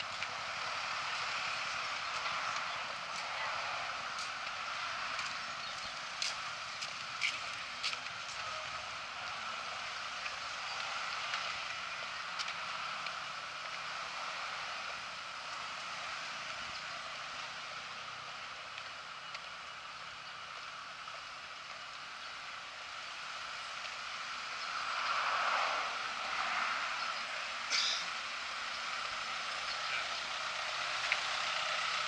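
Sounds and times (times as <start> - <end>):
traffic hiss: 0.0 - 32.0
car passing close by: 24.5 - 28.3.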